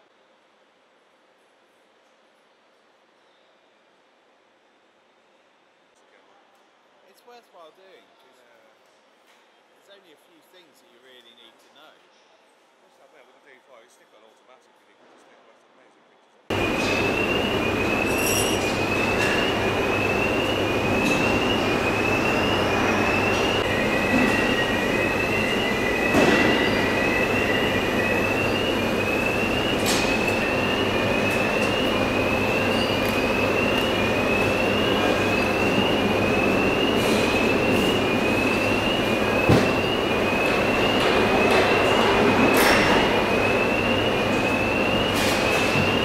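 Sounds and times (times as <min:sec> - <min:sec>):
high steady whine: 0:16.5 - 0:46.0
machinery hiss and hum: 0:16.5 - 0:46.0.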